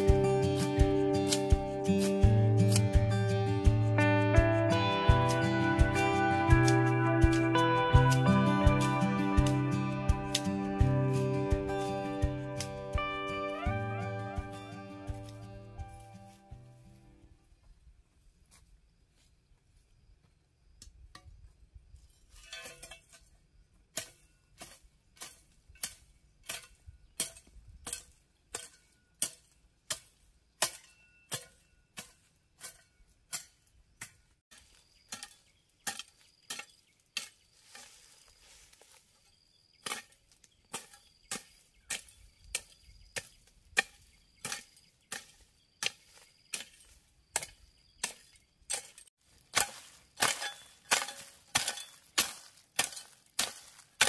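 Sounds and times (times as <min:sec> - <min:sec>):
metal hand tool striking: 0:24.0 - 0:37.9, 0:39.8 - 0:54.0.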